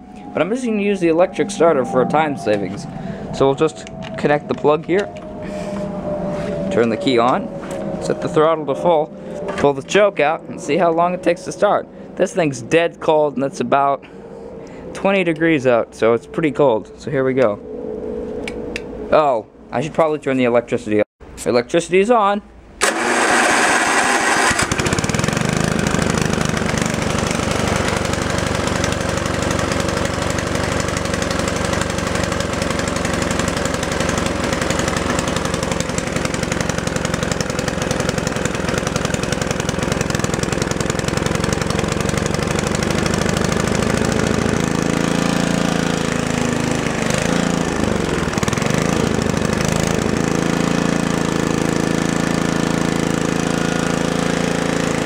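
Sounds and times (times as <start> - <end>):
snowblower engine running: 22.8 - 55.0.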